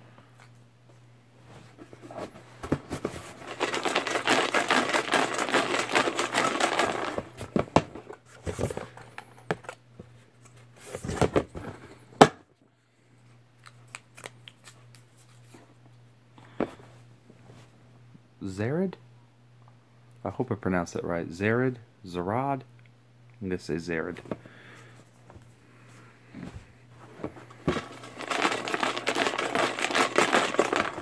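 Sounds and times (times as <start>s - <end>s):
paper slips stirred in plastic tub: 3.4s - 7.2s, 27.7s - 31.0s.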